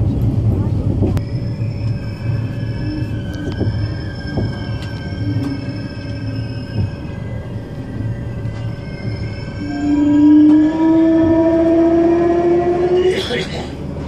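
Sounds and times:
train rumbling on rails: 0.0s - 14.0s
thin high squealing tones: 1.2s - 13.4s
train horn blast: 9.6s - 13.6s.

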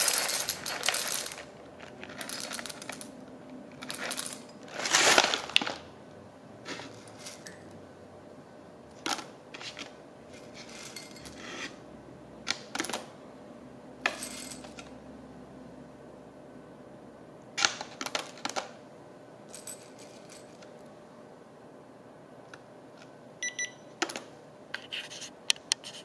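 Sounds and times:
coffee beans rattling in ceramic cup: 0.0s - 3.2s, 3.8s - 5.9s.

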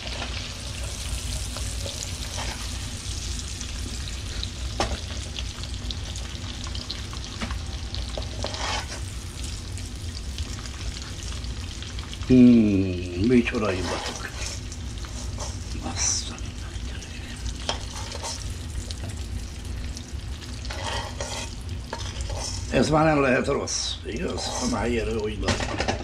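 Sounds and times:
sausage sizzling in a pan: 0.0s - 26.0s
stirring knocks and scrapes: 0.1s - 2.8s, 7.3s - 9.1s, 13.6s - 15.7s, 17.6s - 19.2s, 20.6s - 22.9s, 24.3s - 26.0s.

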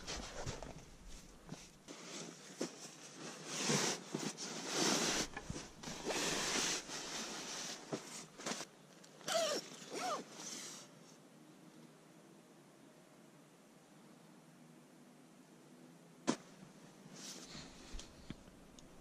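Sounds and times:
sleeping bag rustling: 0.0s - 10.8s.

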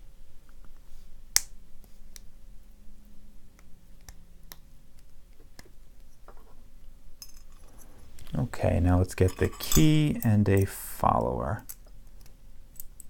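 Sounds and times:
metal tool clicking on lock: 9.2s - 10.7s.

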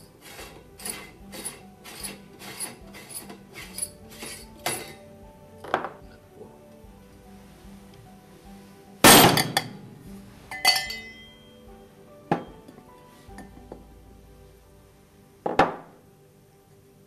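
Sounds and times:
ringing metallic clink: 10.5s - 11.4s.

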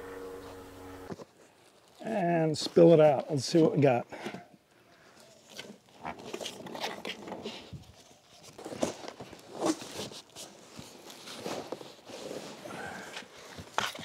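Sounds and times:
cardboard rustling and scraping: 5.3s - 14.0s.

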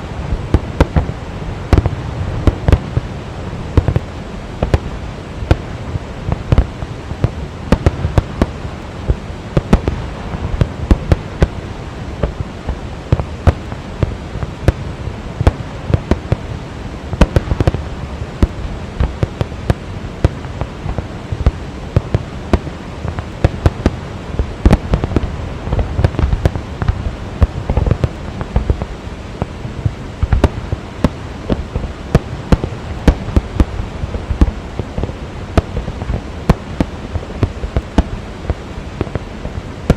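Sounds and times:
fireworks bangs and crackling: 0.0s - 39.9s
steady low rumble: 0.0s - 39.9s.

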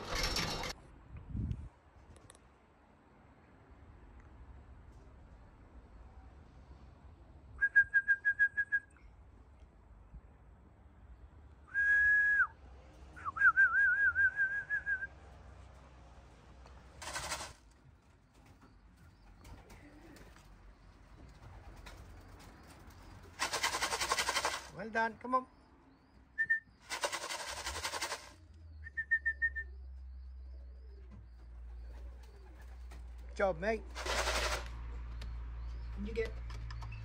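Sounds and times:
person whistling: 11.7s - 12.5s, 13.3s - 15.1s.

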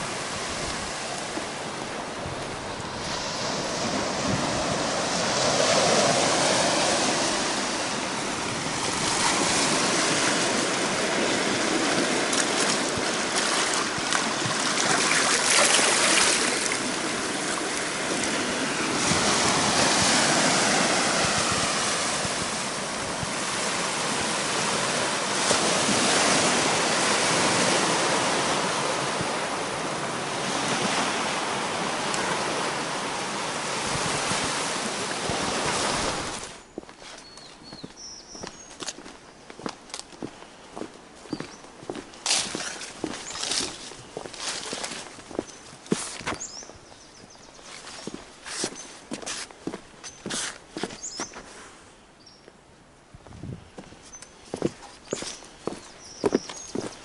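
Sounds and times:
seawater rushing and foaming: 0.0s - 36.6s
waves washing over rocky shore: 0.0s - 36.6s.

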